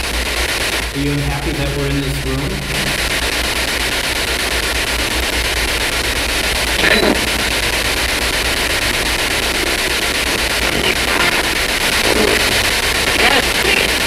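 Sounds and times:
low hum: 0:00.0 - 0:14.0
radio static hiss: 0:00.0 - 0:14.0
brief burst of radio sound: 0:06.8 - 0:08.0.

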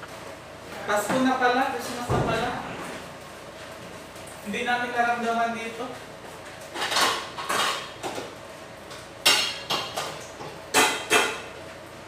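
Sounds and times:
dishes and pots clattering: 0:06.7 - 0:08.3, 0:09.2 - 0:11.6.

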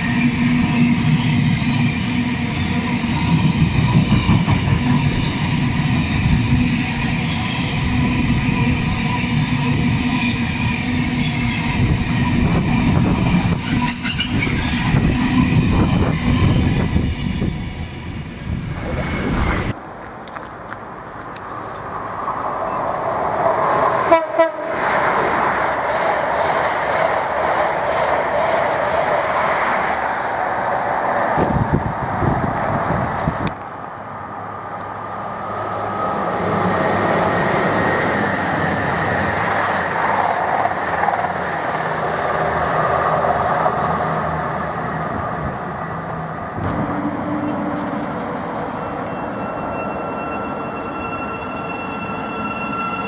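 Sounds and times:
train running past on tracks: 0:00.0 - 0:53.0
electric train braking whine: 0:44.2 - 0:53.0.

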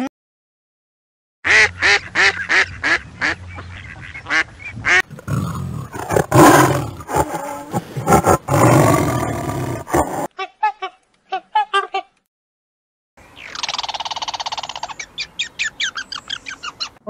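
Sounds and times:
tiger growling and roaring: 0:05.1 - 0:10.3.

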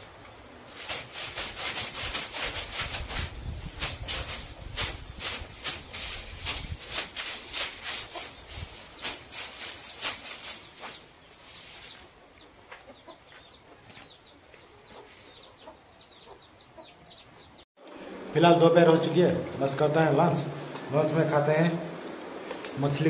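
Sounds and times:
birds chirping: 0:00.0 - 0:01.7, 0:02.6 - 0:17.7
broom swishing against wall: 0:00.6 - 0:12.1.

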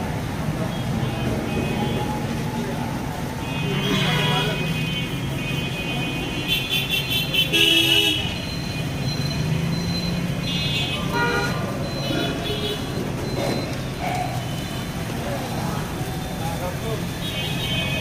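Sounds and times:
traffic engine hum: 0:00.0 - 0:18.0
vehicle horns tooting: 0:03.4 - 0:09.7, 0:10.3 - 0:13.8, 0:17.0 - 0:18.0.

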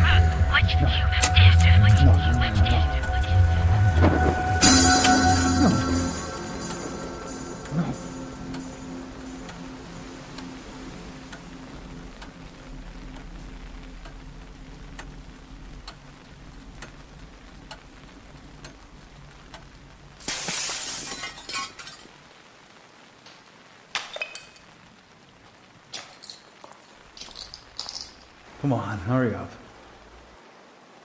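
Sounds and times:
faint ticking: 0:00.0 - 0:20.2
low drone: 0:00.0 - 0:20.2
glass smashing: 0:20.2 - 0:22.1, 0:24.0 - 0:24.7, 0:25.9 - 0:28.4
glass shards tinkling: 0:20.4 - 0:22.1, 0:24.0 - 0:24.7, 0:25.9 - 0:28.4.

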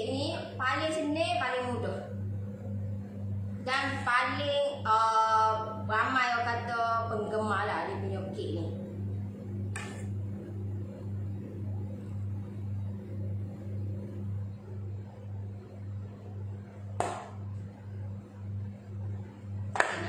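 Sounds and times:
pulsing electrical hum: 0:00.0 - 0:20.0
sharp tap: 0:17.0 - 0:17.4.

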